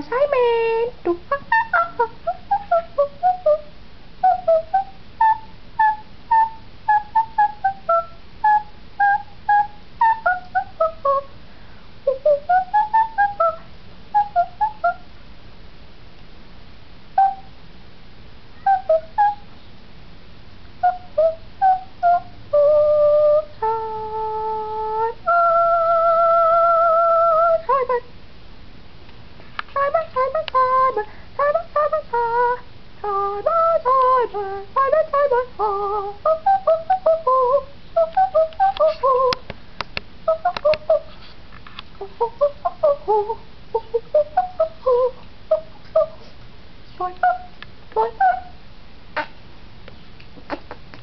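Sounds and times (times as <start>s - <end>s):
long held tones: 0.0s - 11.4s, 12.0s - 15.1s, 17.2s - 17.6s, 18.6s - 19.5s, 20.8s - 28.1s, 29.8s - 39.5s.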